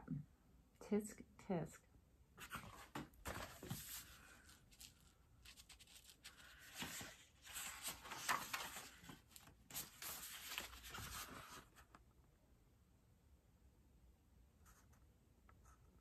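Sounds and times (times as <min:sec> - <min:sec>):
paper pages rustling: 0:02.4 - 0:12.0.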